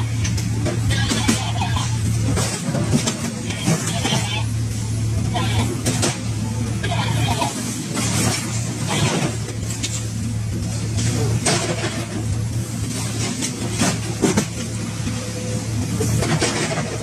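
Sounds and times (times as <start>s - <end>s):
metallic clanks and crunches: 0.0s - 4.5s, 5.4s - 10.1s, 16.0s - 17.0s
excavator engine running: 0.0s - 17.0s.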